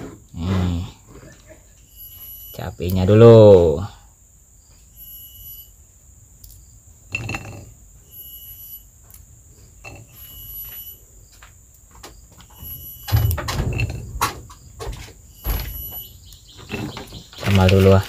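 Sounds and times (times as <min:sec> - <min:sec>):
insects calling: 0:00.0 - 0:18.0
knocks and clatters: 0:11.3 - 0:18.0.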